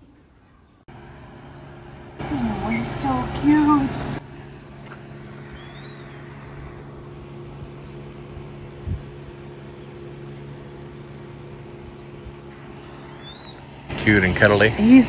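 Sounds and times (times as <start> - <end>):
low mechanical hum: 0.0 - 15.0
faint high chirp: 5.2 - 6.2, 12.9 - 13.7.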